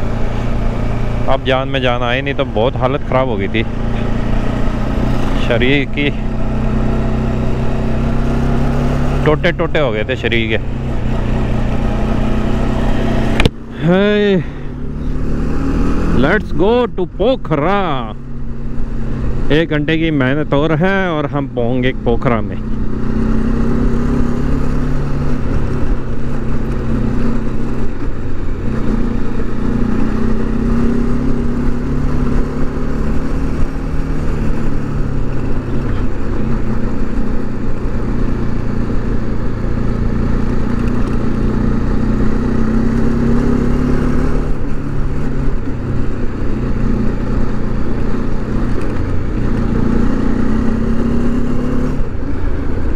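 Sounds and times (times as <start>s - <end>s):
motorcycle engine cruising: 0.0s - 52.9s.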